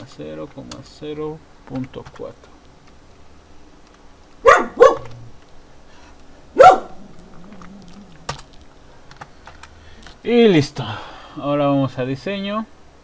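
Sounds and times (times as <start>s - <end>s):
dog barking: 4.4s - 5.2s, 6.6s - 7.0s
computer keyboard clicks: 7.4s - 10.2s.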